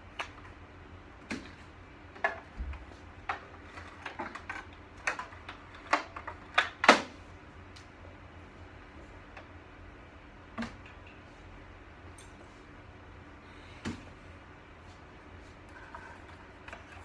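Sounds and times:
cables and plastic parts clicking: 1.3s - 7.1s.

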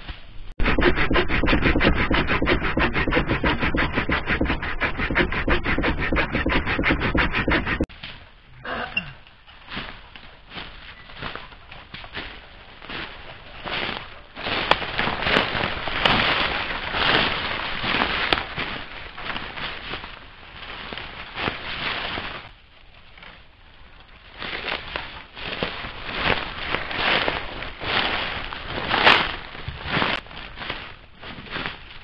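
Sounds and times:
leaves and twigs crackling underfoot: 9.4s - 32.0s.

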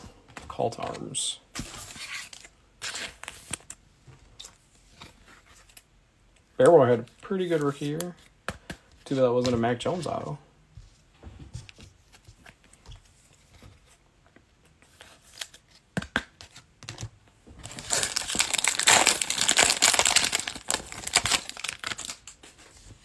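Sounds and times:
wrapper torn and crinkled: 17.6s - 22.4s.

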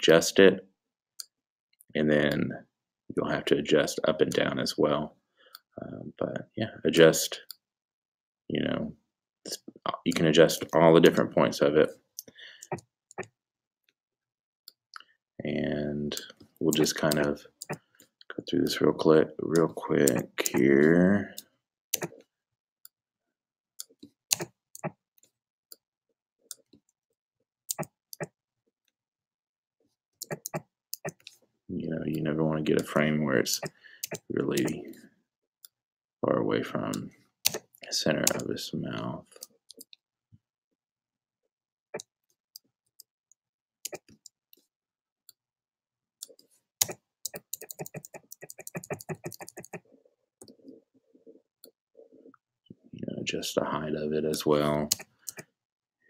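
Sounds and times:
computer keys and mouse clicking: 16.4s - 17.8s, 19.6s - 20.7s, 22.0s - 22.2s, 27.7s - 28.3s, 30.2s - 31.3s, 32.2s - 34.9s, 36.9s - 38.5s, 43.9s - 44.3s, 46.2s - 49.8s, 54.3s - 55.4s.

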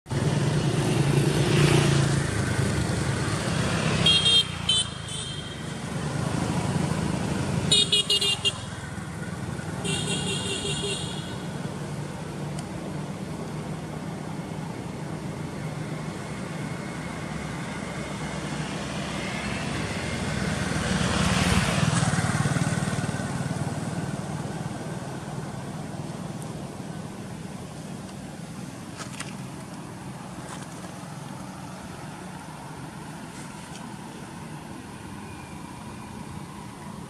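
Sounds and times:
hum of engines: 0.1s - 37.0s
motorbike horn toot: 4.0s - 5.6s, 7.7s - 8.6s, 9.8s - 11.5s
vehicle passing close: 5.6s - 8.0s, 16.0s - 27.7s.

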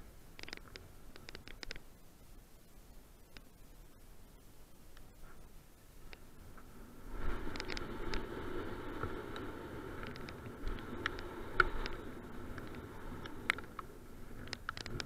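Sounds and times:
bike clicking and rattling: 0.0s - 1.9s, 7.4s - 15.0s
tyres on loose dirt and gravel: 5.1s - 15.0s.

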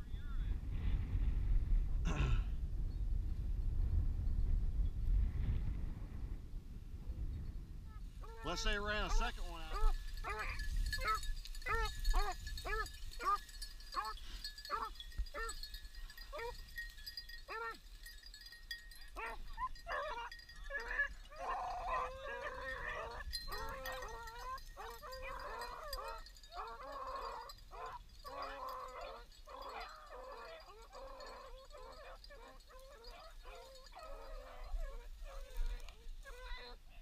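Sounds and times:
hounds baying: 8.2s - 36.8s.

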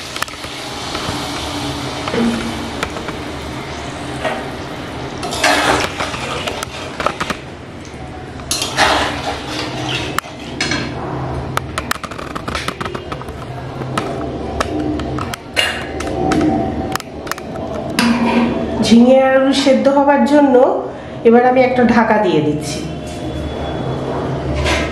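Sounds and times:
metal spatula scraping a pan: 5.2s - 7.2s, 8.5s - 11.0s, 24.5s - 24.9s.

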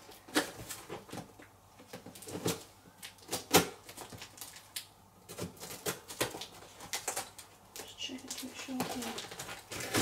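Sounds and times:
packing tape scraping and crackling: 0.0s - 10.0s.

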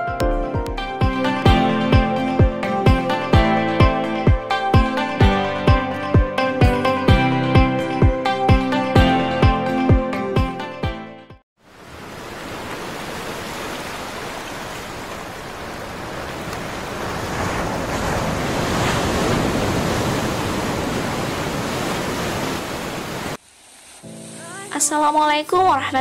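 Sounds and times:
small waves on sandy beach: 11.6s - 24.6s.

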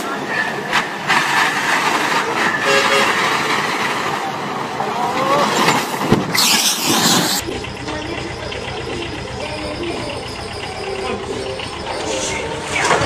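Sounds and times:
bystanders' voices: 0.0s - 13.0s
vehicle noise: 0.0s - 13.0s
loud rushing noise: 0.9s - 7.5s
truck crash thud: 5.5s - 7.4s.

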